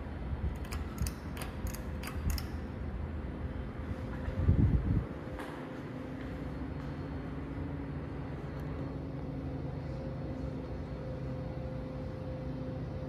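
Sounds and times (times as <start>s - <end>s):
ceiling fan humming: 0.0s - 13.0s
faint steady tones: 5.9s - 13.0s.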